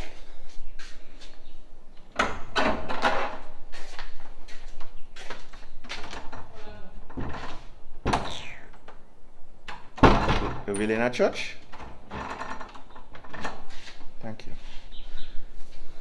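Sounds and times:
clicks and knocks at wooden door: 9.7s - 10.9s.

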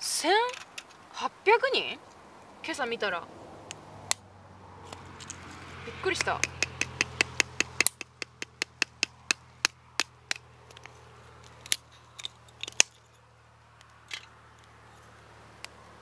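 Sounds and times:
wooden sticks clicking and knocking: 4.9s - 13.2s.

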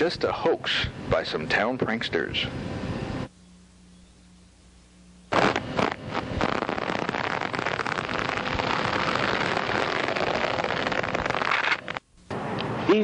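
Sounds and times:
dense crackling hiss: 4.6s - 12.2s.

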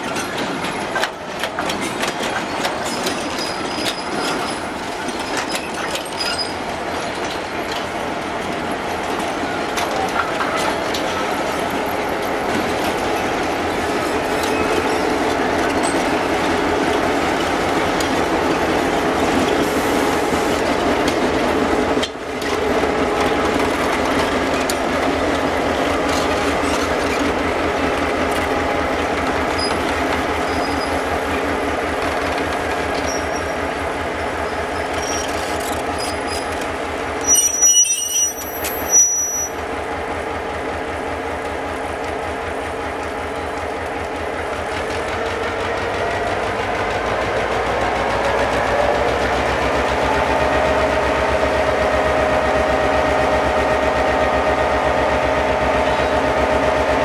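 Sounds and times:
diesel locomotives running: 0.0s - 57.0s
train wheel and wagon noise: 0.0s - 57.0s
short high squeals: 37.2s - 39.6s.

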